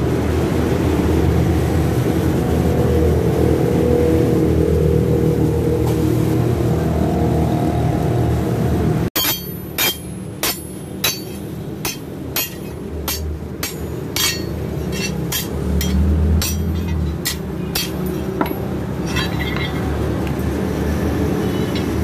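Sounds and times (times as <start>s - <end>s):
hammer striking chisel on metal: 9.2s - 20.0s
steady low hum: 9.2s - 21.3s.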